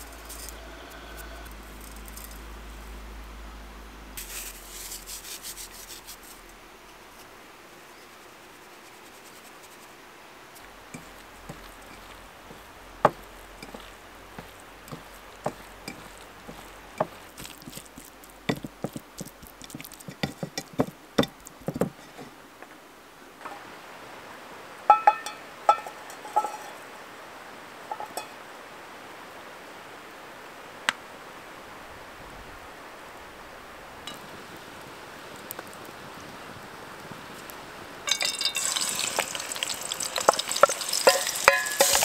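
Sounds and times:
outdoor hiss: 0.0s - 42.0s
hands mixing chicken in bowl: 10.9s - 22.3s, 38.1s - 42.0s.

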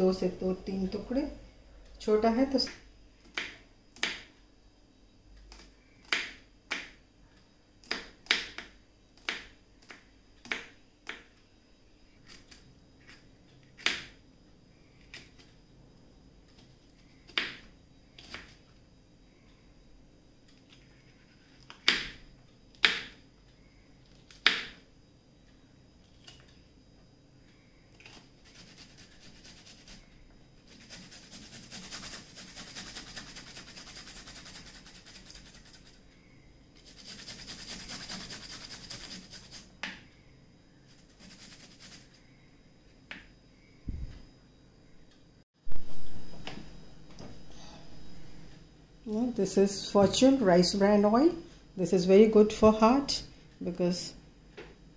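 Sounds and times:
peeler scraping ginger: 28.0s - 30.1s, 30.7s - 36.0s, 36.8s - 39.7s.

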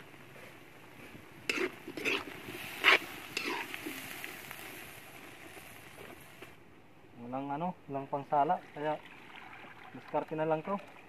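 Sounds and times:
food sizzling: 1.0s - 6.6s
ladle scraping in metal wok: 1.5s - 4.4s.

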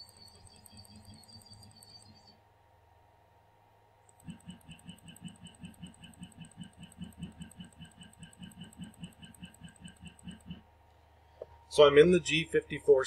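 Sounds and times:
stepper motor pulses: 0.0s - 2.3s, 4.1s - 10.8s.

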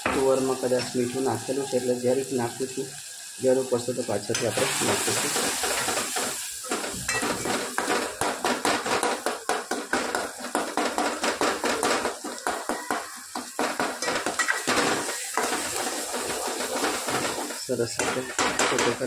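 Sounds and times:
spoon scraping metal pot: 13.6s - 19.0s.

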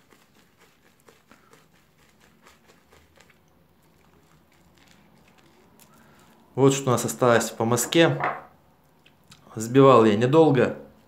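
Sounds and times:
shaving brush squishing lather: 0.0s - 7.7s.

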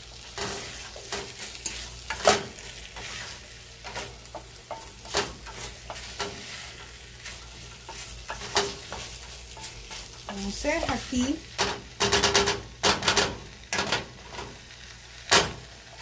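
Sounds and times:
soft steady sizzle: 0.0s - 16.0s
spoon scraping potatoes in pot: 0.2s - 11.5s.

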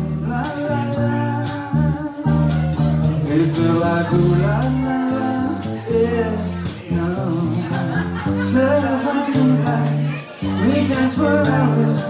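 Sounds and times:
bass guitar: 0.0s - 12.0s
electric guitar: 0.0s - 12.0s
person singing into microphones: 0.0s - 12.0s
drums with cymbal beat: 1.4s - 4.8s, 5.5s - 10.0s.

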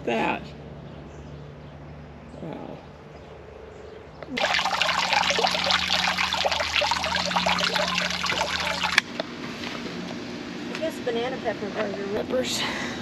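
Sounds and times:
fountain water splashing into pond: 4.4s - 9.1s.

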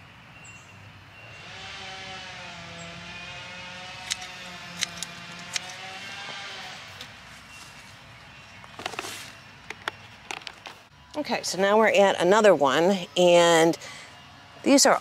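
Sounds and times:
motor droning: 1.2s - 7.6s
pruning shears snipping: 3.8s - 7.2s.

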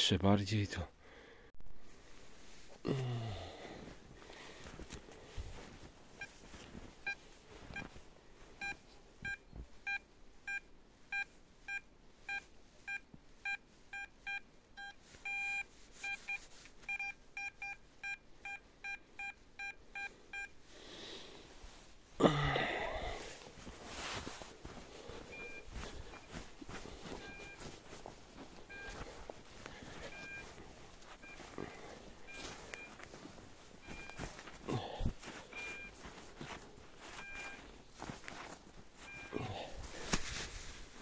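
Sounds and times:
metal detector beeps: 8.6s - 20.5s, 27.1s - 27.7s, 28.6s - 29.2s, 30.0s - 30.5s, 33.8s - 34.3s, 37.1s - 37.7s, 39.1s - 39.5s.

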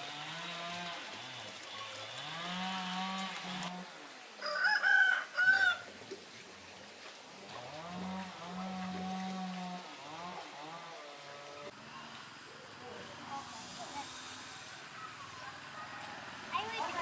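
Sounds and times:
rooster crowing: 4.4s - 5.9s, 15.4s - 16.5s.

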